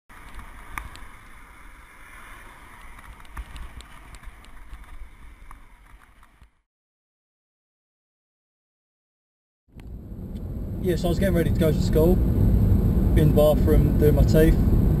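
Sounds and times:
wind buffeting microphone: 9.8s - 15.0s.

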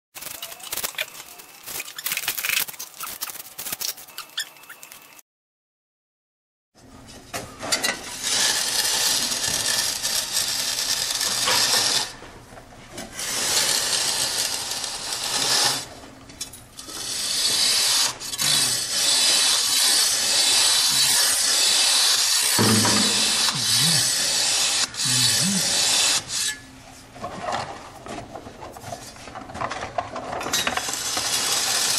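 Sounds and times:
flat tool scraping mortar: 8.0s - 12.2s, 13.0s - 15.9s, 16.8s - 26.6s.

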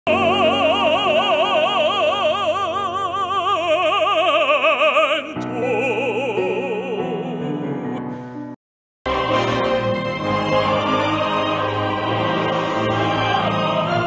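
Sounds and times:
operatic singing with vibrato: 0.0s - 8.0s, 9.1s - 14.0s
musical accompaniment: 5.2s - 14.0s.

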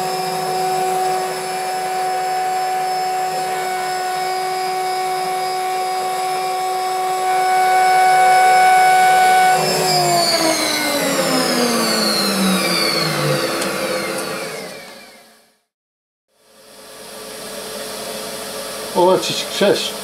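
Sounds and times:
spindle high whine: 0.0s - 15.2s.

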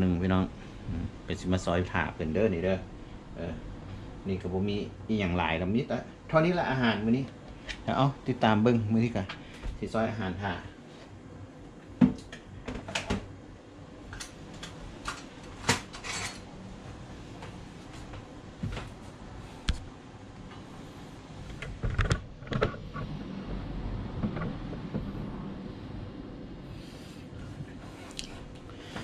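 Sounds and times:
dishes and utensils clinking: 15.7s - 16.5s
low rumble: 22.7s - 27.6s.

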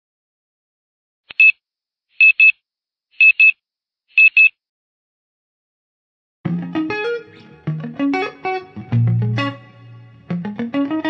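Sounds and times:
electronic alarm double beeps: 3.2s - 3.6s, 4.2s - 4.6s
electric guitar music: 6.4s - 11.0s.

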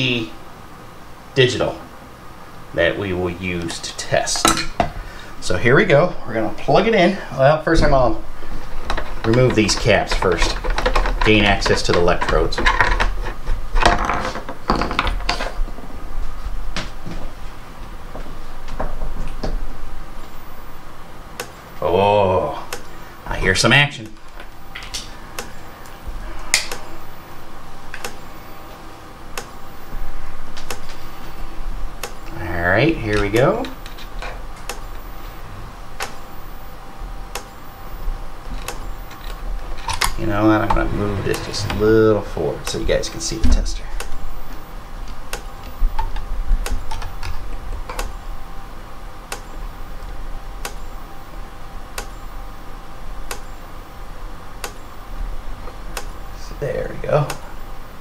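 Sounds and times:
electric fence charger clicking: 8.8s - 13.1s, 21.3s - 21.6s, 22.7s - 22.9s, 24.1s - 26.9s, 27.9s - 28.3s, 29.3s - 29.6s, 30.5s - 31.0s, 32.0s - 32.3s, 33.1s - 35.0s, 36.0s - 36.3s, 37.3s - 37.6s, 38.5s - 41.9s, 42.6s - 48.2s, 49.3s - 50.9s, 51.9s - 52.2s, 53.2s - 53.6s, 54.6s - 54.9s, 55.7s - 56.2s.

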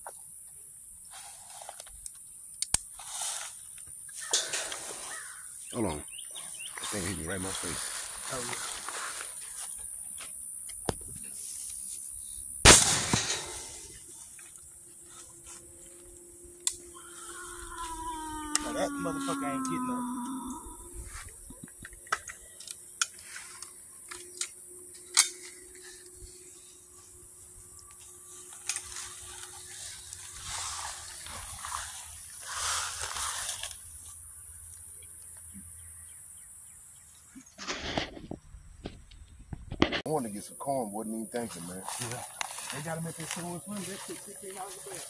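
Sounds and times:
gunshot with echo: 12.7s - 13.9s.

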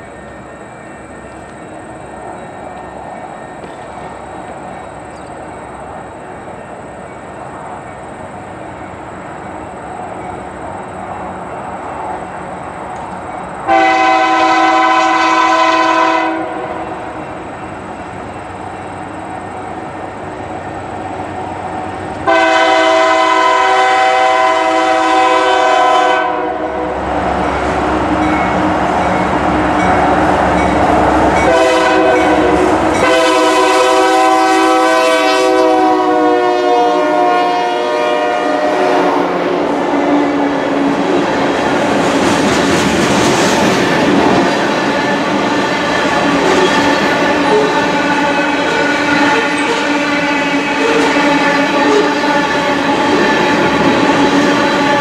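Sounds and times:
locomotive engines and train rumble: 0.0s - 55.0s
locomotive air horn blasts: 13.7s - 17.2s, 22.2s - 27.0s, 31.4s - 39.6s, 46.5s - 55.0s.

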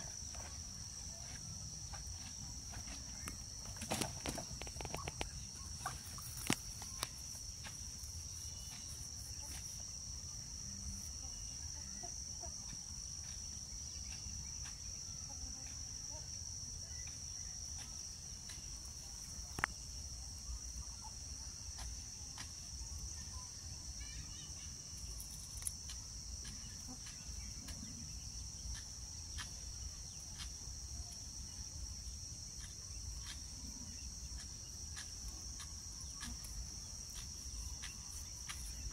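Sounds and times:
insects chirring: 0.0s - 38.9s.

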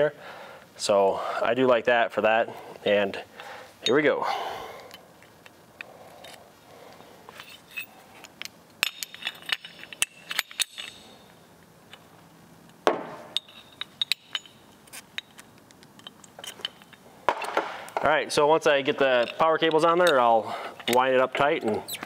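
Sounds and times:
metal clicks and clinks: 7.3s - 11.2s, 13.4s - 17.6s.

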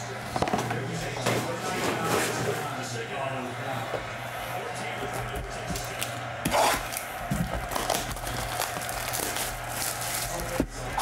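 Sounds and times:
plastic wrap crinkling: 7.6s - 11.0s.

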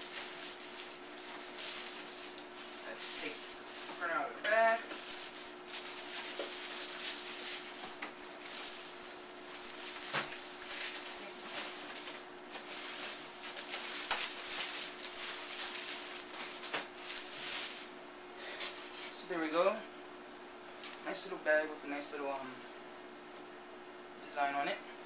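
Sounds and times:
plastic wrapping crinkling: 0.0s - 18.0s, 20.6s - 21.2s
faint steady hum: 0.0s - 25.0s.

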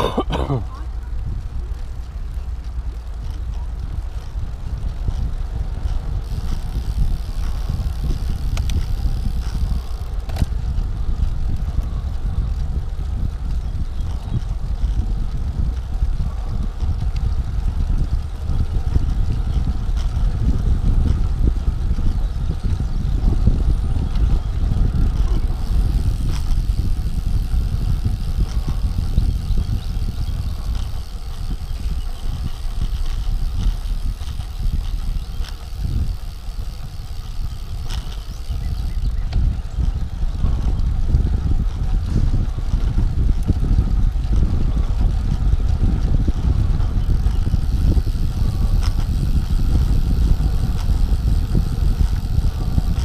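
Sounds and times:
wind buffeting microphone: 0.0s - 53.0s
faint clicks: 5.8s - 10.6s.

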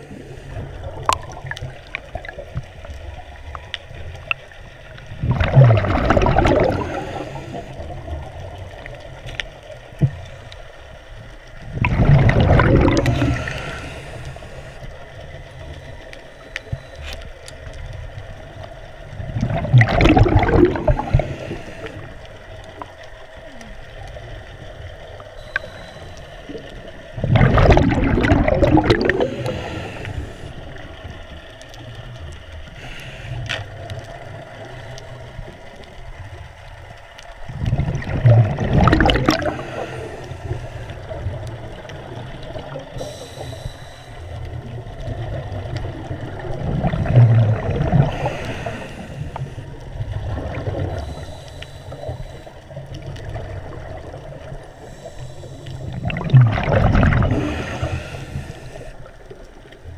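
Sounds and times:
gurgling exhaled bubbles: 0.0s - 10.4s, 11.5s - 16.0s, 18.0s - 36.6s, 37.3s - 59.9s
water noise: 0.0s - 59.9s
hissy inhalations: 6.6s - 8.0s, 13.0s - 17.1s, 20.8s - 22.4s, 25.4s - 26.7s, 29.1s - 30.8s, 32.6s - 33.9s, 39.4s - 41.3s, 42.7s - 44.7s, 47.9s - 49.9s, 50.8s - 52.8s, 54.6s - 56.1s, 57.2s - 59.2s.

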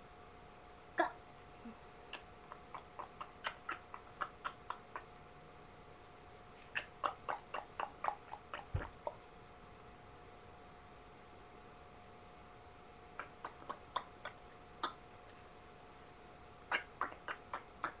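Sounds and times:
clicks imitating hoofbeats: 2.1s - 5.2s, 6.8s - 9.2s.

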